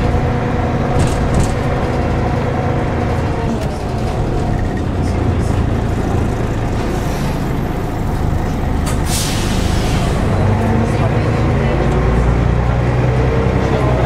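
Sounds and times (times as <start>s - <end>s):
diesel bus engine rumbling: 0.0s - 14.0s
air brake click and hiss: 8.8s - 10.3s.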